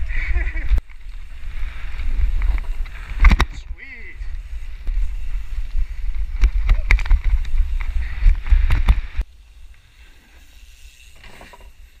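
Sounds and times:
bike tyre rumble: 0.0 - 12.0
bike rattling clicks: 0.3 - 3.7, 4.7 - 9.8.

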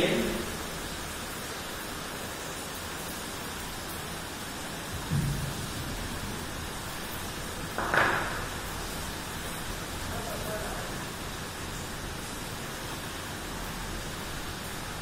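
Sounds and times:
background hiss: 0.0 - 15.0
low thud: 5.0 - 5.9.

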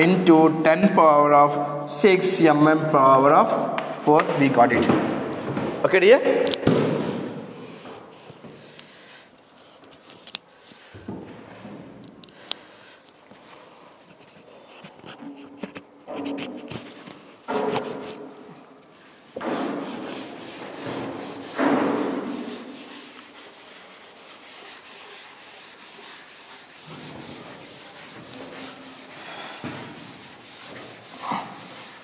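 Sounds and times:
duster scrubbing a chalkboard: 13.4 - 18.4, 19.2 - 32.0.

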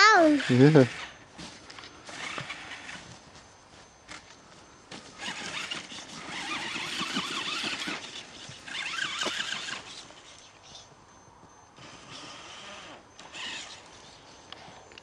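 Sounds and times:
toy truck electric motor whining: 0.0 - 3.2, 5.0 - 10.8, 11.8 - 14.2.

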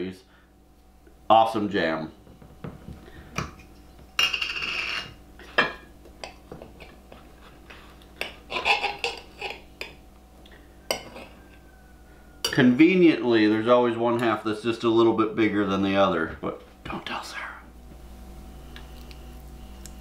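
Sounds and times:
knife scraping ceramic plate: 4.2 - 5.8, 6.8 - 10.0, 10.9 - 11.6.

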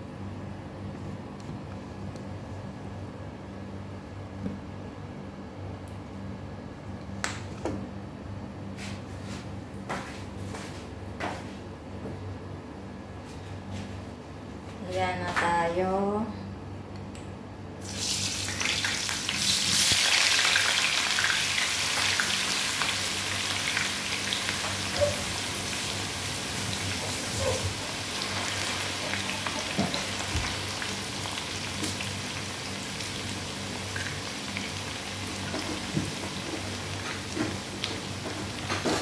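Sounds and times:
potatoes sizzling in hot oil: 17.8 - 38.9.

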